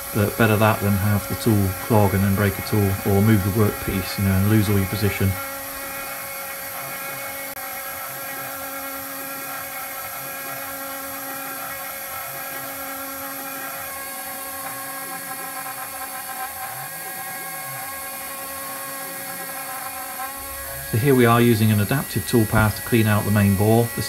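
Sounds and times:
coolant spray hiss: 0.0s - 5.4s
milling spindle whine: 0.0s - 24.0s.

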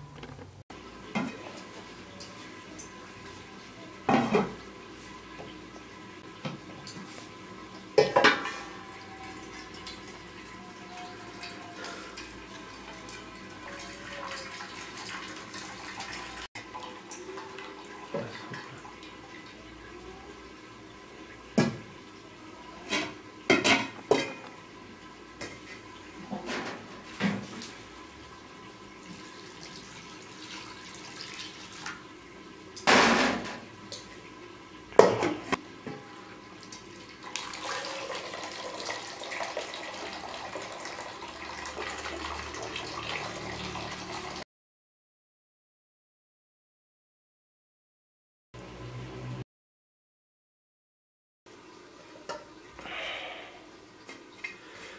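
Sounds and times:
pots and lids clanking: 7.9s - 8.7s, 22.8s - 24.5s, 32.8s - 33.7s
liquid pouring between pots: 36.6s - 44.4s.

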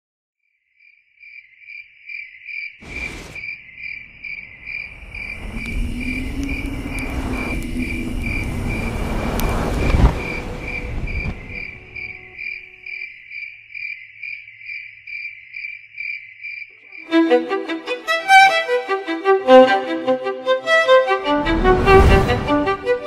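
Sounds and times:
cricket chirping: 0.6s - 17.7s
low rumble with rising hum: 2.8s - 12.4s.

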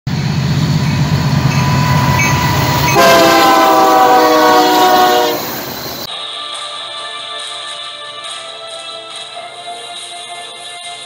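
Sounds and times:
diesel locomotive engine rumbling: 0.1s - 6.1s
locomotive air horn: 0.8s - 6.0s.

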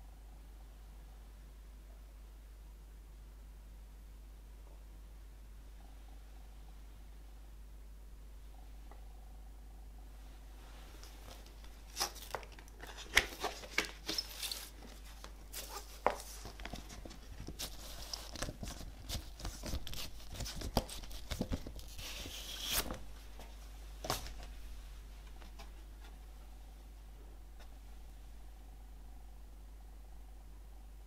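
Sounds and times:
cardboard sleeve tapping and rustling: 11.3s - 24.5s.

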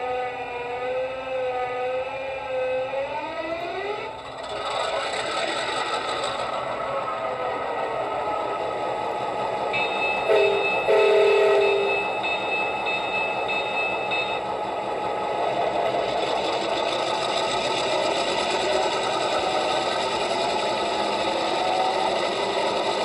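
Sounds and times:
thin high steady tone: 9.7s - 14.6s
train horn blasts: 9.8s - 12.2s.

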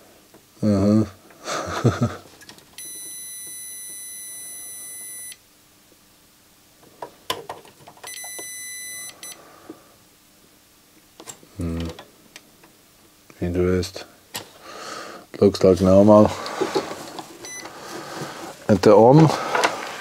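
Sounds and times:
multimeter beeping: 2.8s - 5.4s, 8.1s - 9.4s, 17.4s - 17.8s.

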